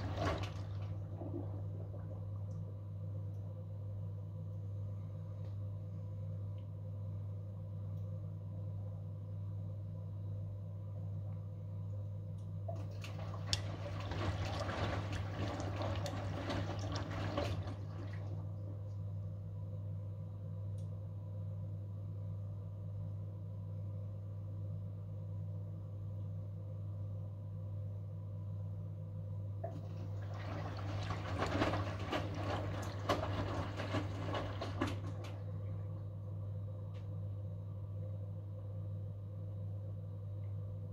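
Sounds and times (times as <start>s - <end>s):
water sloshing in washing machine: 0.0s - 2.8s, 12.7s - 19.2s, 29.6s - 36.1s
steady low hum: 0.0s - 40.9s.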